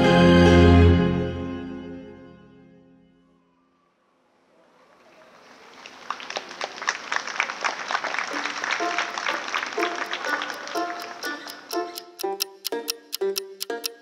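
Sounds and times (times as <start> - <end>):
audience applause: 4.9 - 11.7
plucked string notes: 9.8 - 14.0.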